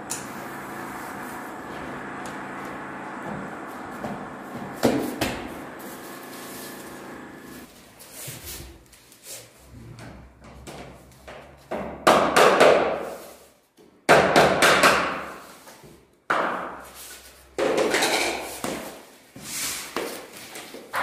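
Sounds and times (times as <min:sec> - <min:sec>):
hammer knocking flooring planks: 0:02.8 - 0:05.6, 0:10.4 - 0:13.2, 0:14.1 - 0:15.4, 0:16.3 - 0:16.8.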